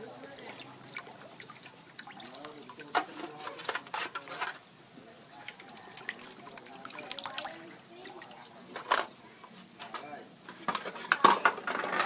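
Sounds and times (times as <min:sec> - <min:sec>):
soda dripping into steel bowl: 0:00.0 - 0:03.6, 0:05.2 - 0:09.6.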